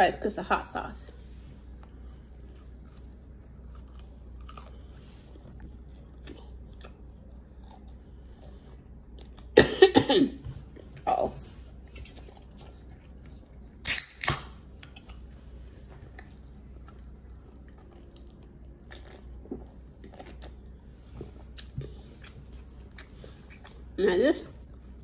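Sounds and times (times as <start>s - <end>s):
chewing crispy chicken: 1.8s - 9.6s, 14.7s - 25.0s.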